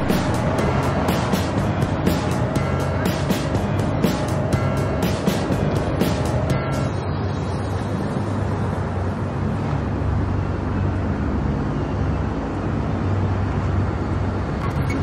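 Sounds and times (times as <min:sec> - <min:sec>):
low rumble with faint hum: 0:00.0 - 0:08.4.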